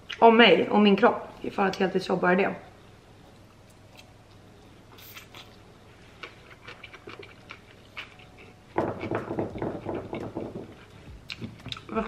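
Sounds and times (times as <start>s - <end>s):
chewing with wet mouth clicks: 6.2s - 8.5s, 11.3s - 11.9s.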